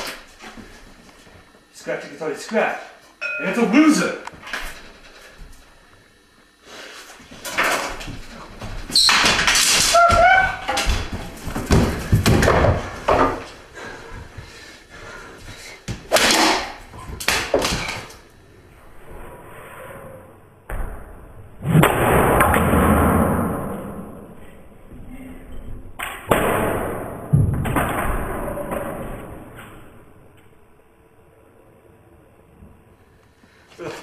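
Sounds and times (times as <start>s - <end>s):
bangs and thumps of a scuffle: 7.1s - 13.6s.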